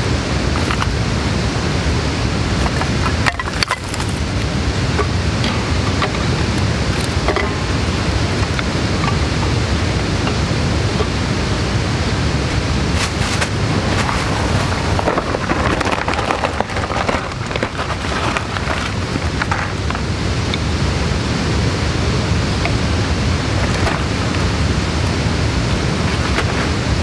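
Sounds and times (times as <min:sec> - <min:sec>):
loud rushing noise: 0:00.0 - 0:27.0
wooden sticks clattering on metal: 0:02.5 - 0:04.4, 0:13.0 - 0:20.0.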